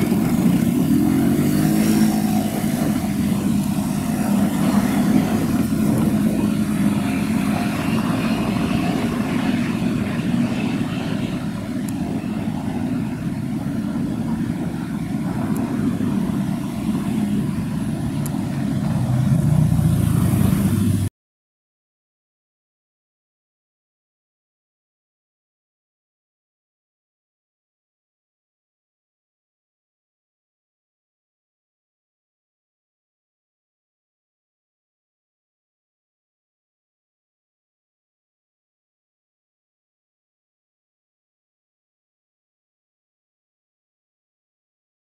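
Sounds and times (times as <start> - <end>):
street traffic rumble: 0.0 - 21.1.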